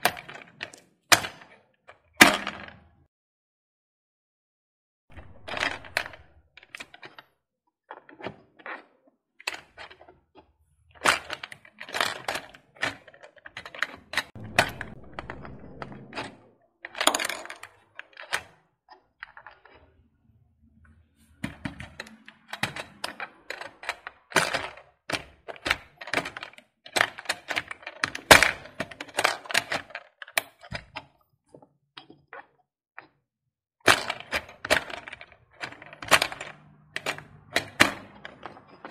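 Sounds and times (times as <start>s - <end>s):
claw machine plastic clatter: 7.9s - 14.4s, 21.4s - 33.2s, 33.8s - 38.9s.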